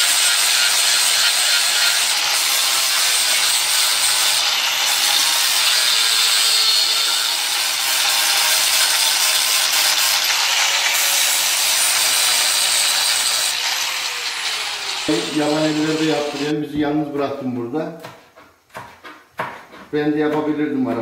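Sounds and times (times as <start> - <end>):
angle grinder grinding steel: 0.0 - 16.6.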